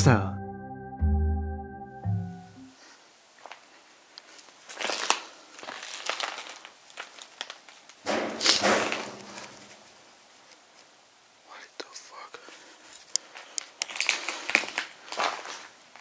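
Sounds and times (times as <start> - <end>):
rustling and crunching of debris: 3.4 - 10.9, 12.6 - 16.0.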